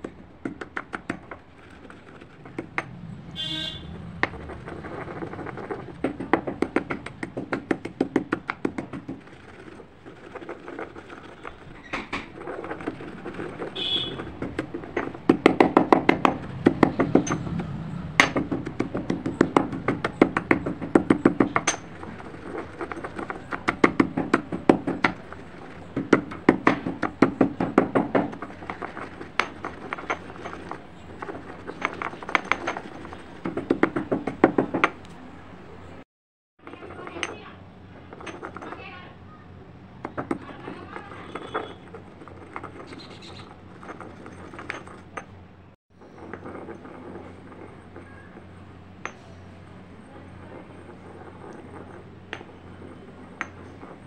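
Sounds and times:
stone clicking on stone: 0:00.0 - 0:02.9
stone pestle grinding in mortar: 0:00.0 - 0:34.8.

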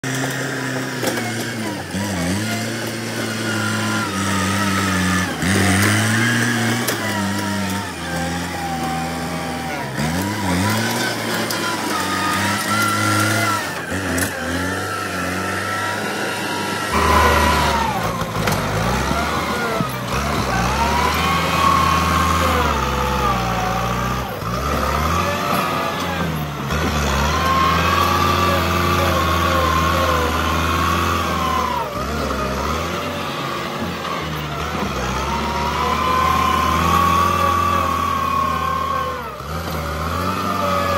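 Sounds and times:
tractor diesel engine under load: 0:00.0 - 0:40.9.

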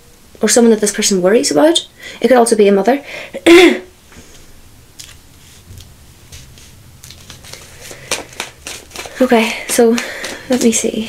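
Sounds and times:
cards shuffling: 0:05.0 - 0:11.0.

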